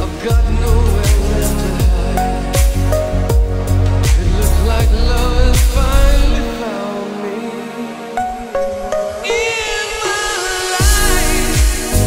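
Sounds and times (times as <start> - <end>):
deep kick drum dropping in pitch: 5.2 - 6.5.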